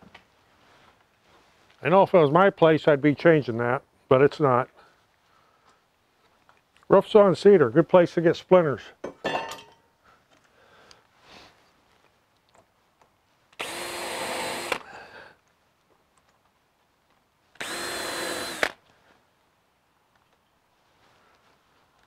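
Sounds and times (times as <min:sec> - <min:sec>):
cordless drill whine: 0:13.6 - 0:14.9, 0:17.6 - 0:18.8.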